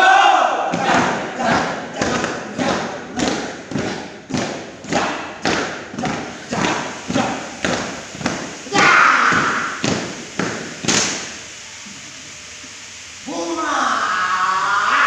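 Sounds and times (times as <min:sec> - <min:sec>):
boots stamping on concrete: 0:00.7 - 0:11.3.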